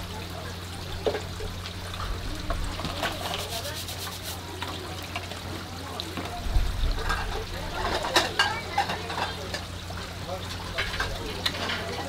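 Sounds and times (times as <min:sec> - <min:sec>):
water trickling: 0:00.0 - 0:12.0.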